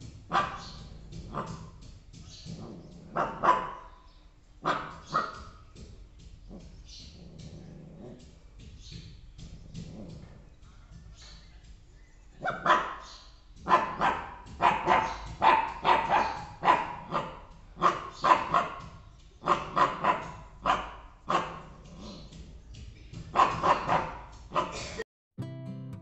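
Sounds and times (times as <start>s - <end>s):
puppy barking: 0.3s - 1.8s, 2.5s - 5.8s, 12.4s - 22.5s, 23.2s - 25.0s.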